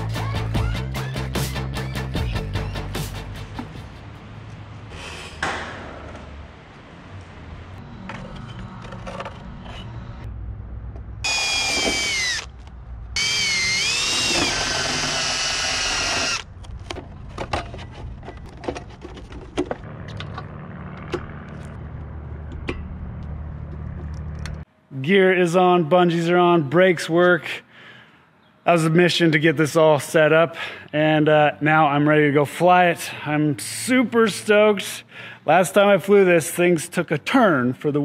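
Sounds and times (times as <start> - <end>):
cordless drill boring: 11.3 - 12.5, 13.2 - 16.5.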